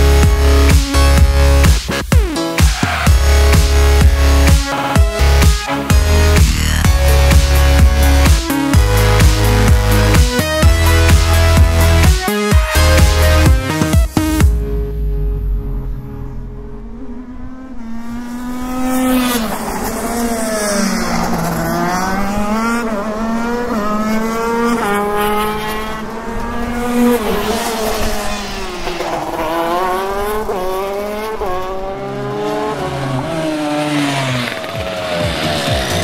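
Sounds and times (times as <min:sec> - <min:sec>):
kart engine revving through gears: 0:15.4 - 0:36.0.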